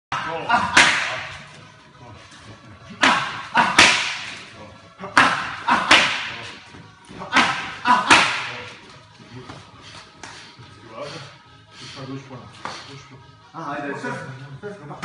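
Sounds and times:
punches hitting focus mitts: 0.5 - 1.3, 3.0 - 4.4, 5.1 - 6.4, 7.2 - 8.6.

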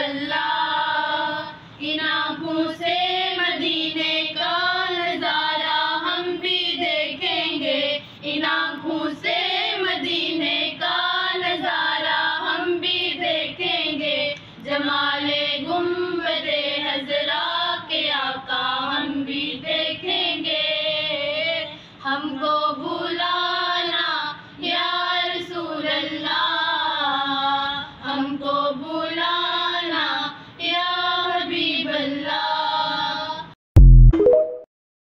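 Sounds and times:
girls singing together unaccompanied: 0.0 - 33.6.

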